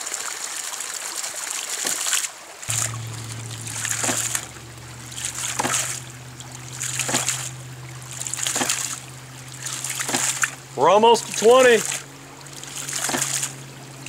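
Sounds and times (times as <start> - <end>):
water spurting from valve: 0.0 - 14.0
sharp valve clack: 2.7 - 10.7
steady low hum: 2.7 - 14.0.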